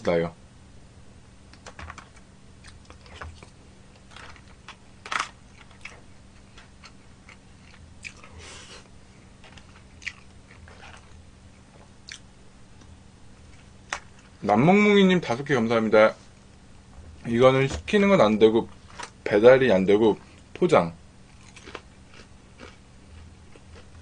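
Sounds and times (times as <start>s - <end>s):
person chewing food: 2.6s - 4.1s, 5.5s - 14.3s, 21.3s - 24.0s.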